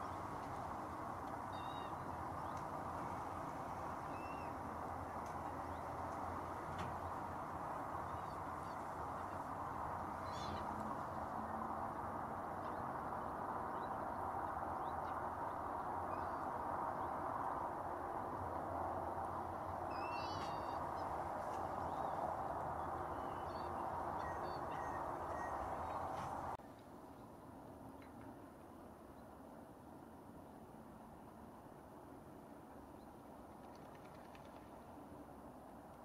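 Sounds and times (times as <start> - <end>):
steady outdoor hiss: 0.0 - 36.0
wavering bird calls: 19.9 - 21.1, 23.0 - 26.6.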